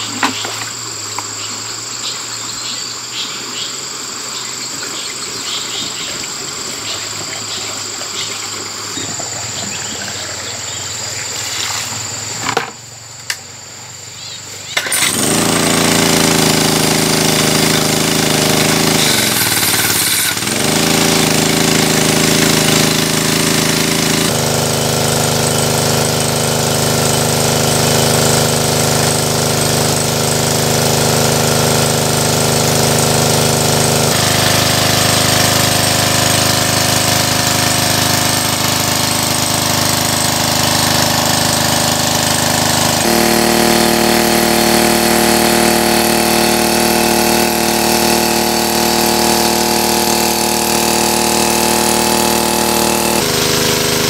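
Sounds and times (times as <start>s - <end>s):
portable water pump engine: 0.0s - 13.5s, 14.4s - 54.0s
water jet splashing: 4.2s - 12.2s.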